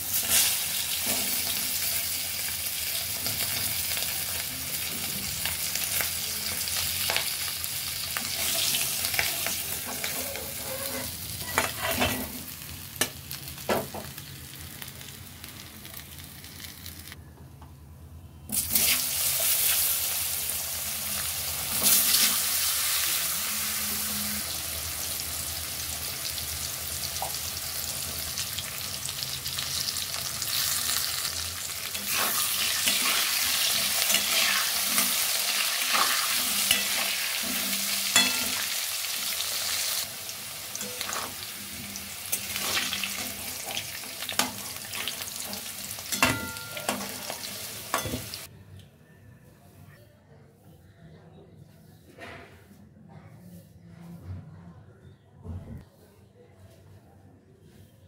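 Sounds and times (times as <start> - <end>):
oil sizzling in a wok: 0.0 - 17.2, 18.5 - 48.5
metal spatula scraping a pan: 8.2 - 12.4, 31.9 - 40.0, 40.7 - 48.5.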